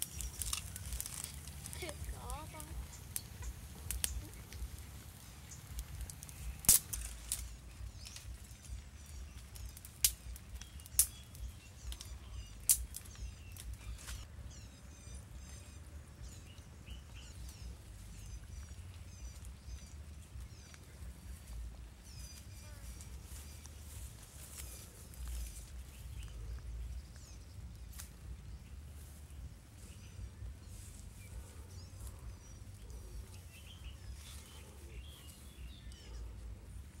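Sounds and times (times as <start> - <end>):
sharp cracks: 0.0 - 8.2, 9.6 - 14.2
small birds chirping: 0.0 - 37.0.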